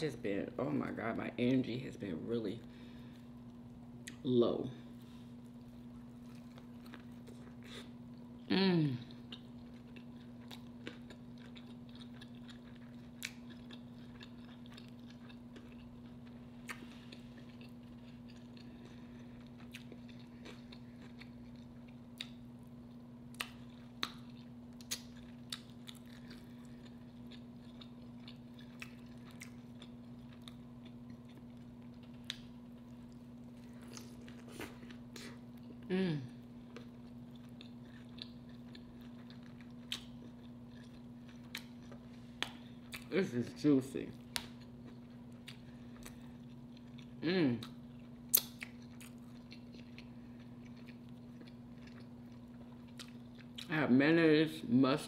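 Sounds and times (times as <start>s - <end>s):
steady low hum: 0.0s - 55.0s
wet mouth clicks from chewing: 46.9s - 52.1s.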